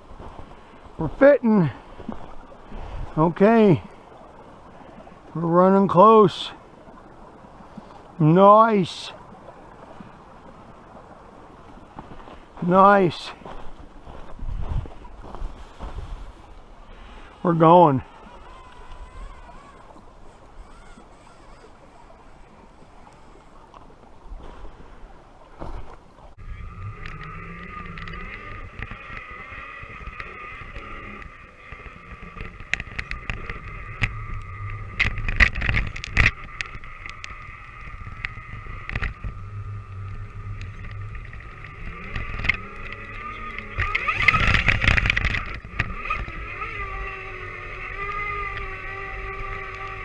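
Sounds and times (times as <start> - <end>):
toy truck motor and gears whining: 18.0 - 20.0, 26.4 - 50.0
noisy rush: 26.3 - 50.0.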